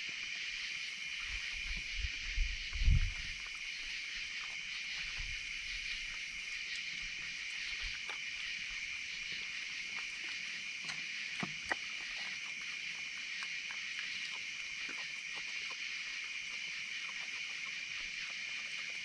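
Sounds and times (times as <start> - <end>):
night insects chorus: 0.0 - 19.0
animal chewing food: 6.0 - 19.0.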